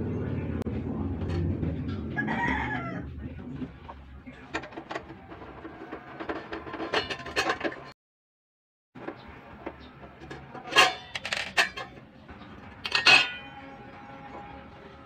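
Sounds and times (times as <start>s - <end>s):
rooster crowing: 2.1s - 3.1s
metal stove parts clinking: 4.5s - 7.9s, 9.8s - 12.1s, 12.7s - 13.6s.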